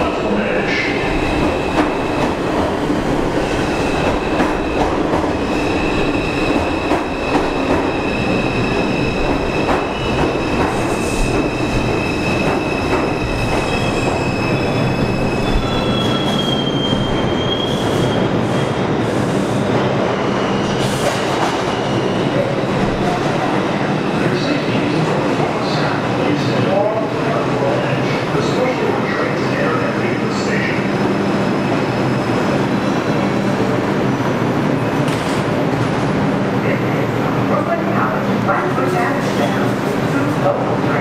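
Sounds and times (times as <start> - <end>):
train wheels rumbling and clattering: 0.0 - 41.0
high squeal of wheels and brakes: 13.2 - 18.3.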